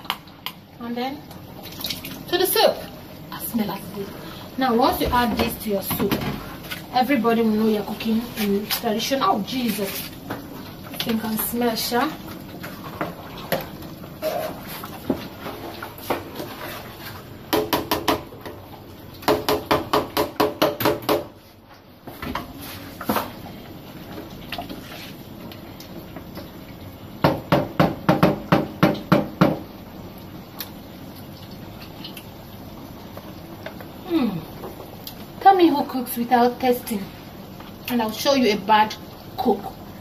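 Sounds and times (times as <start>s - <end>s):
wooden spoon knocking metal pot: 17.5s - 18.3s, 19.2s - 21.3s, 27.2s - 29.6s.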